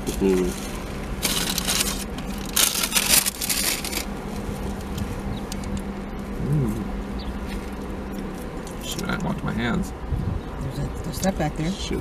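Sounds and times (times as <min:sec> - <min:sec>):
paper wrapper crinkling: 0:01.2 - 0:04.1.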